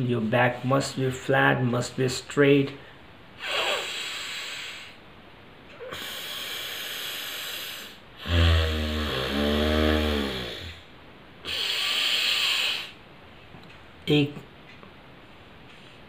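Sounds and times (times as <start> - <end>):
forceful nasal breathing: 3.4 - 5.0, 5.8 - 13.0
low snore-like buzzing: 6.1 - 10.9.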